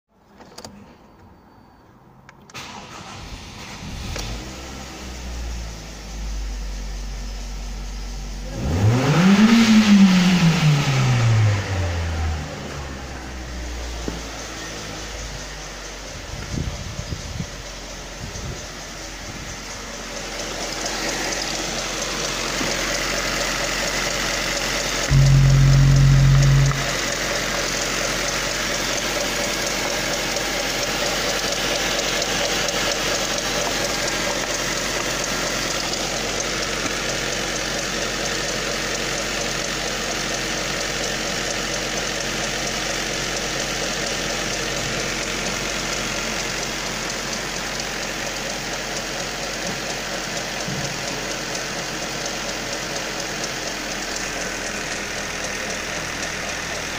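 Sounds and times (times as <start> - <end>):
car engine idling: 2.6 - 56.9.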